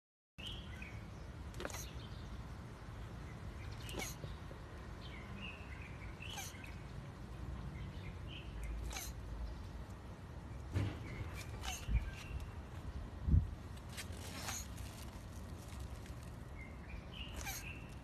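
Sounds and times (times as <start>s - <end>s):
faint bird chirps: 0.4s - 2.4s, 3.3s - 7.1s, 7.8s - 9.7s, 11.0s - 12.6s, 16.1s - 18.0s
steady outdoor noise: 0.4s - 18.0s.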